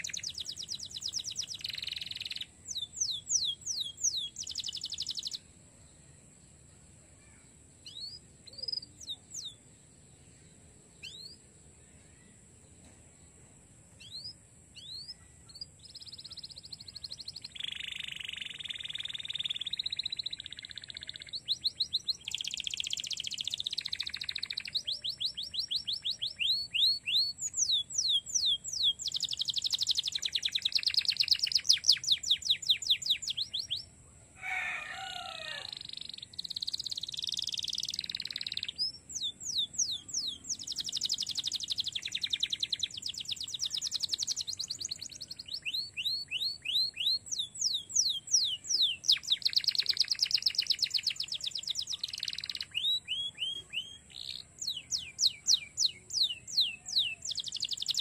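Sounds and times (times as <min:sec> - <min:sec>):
canary singing trills: 0:00.0 - 0:05.5, 0:07.3 - 0:09.7, 0:10.4 - 0:12.4, 0:13.9 - 0:58.0.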